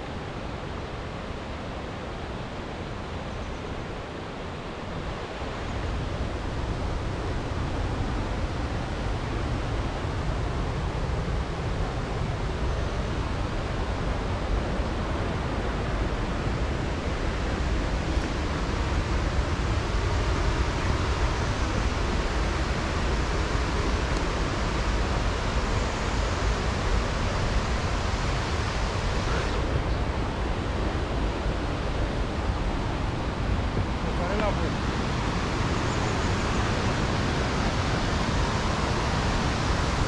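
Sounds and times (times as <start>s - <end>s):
waterfall rushing: 4.1s - 40.0s.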